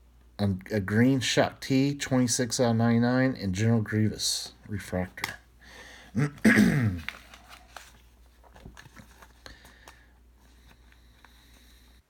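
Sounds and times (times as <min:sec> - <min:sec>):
person speaking: 0:00.4 - 0:05.5
plastic card sleeve crinkling: 0:07.0 - 0:11.9.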